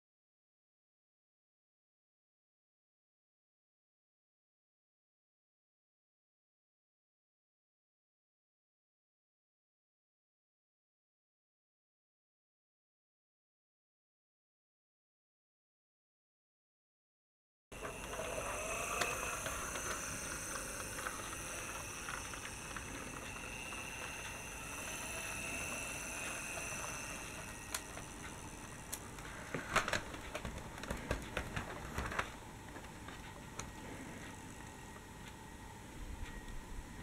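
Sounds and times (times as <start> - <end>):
toy tram hiss: 17.8 - 30.4.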